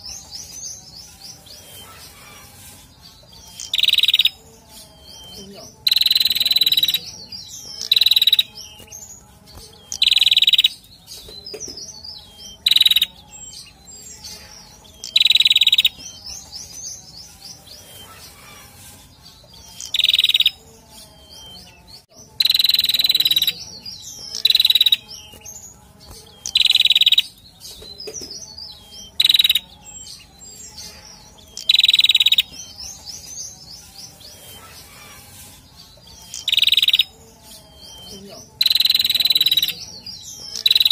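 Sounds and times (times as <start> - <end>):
bird high calls: 1.5 - 9.1, 9.8 - 10.9, 12.0 - 16.3, 17.7 - 21.6, 26.1 - 33.3, 34.3 - 37.2
bird twittering: 3.2 - 17.0, 19.6 - 40.9.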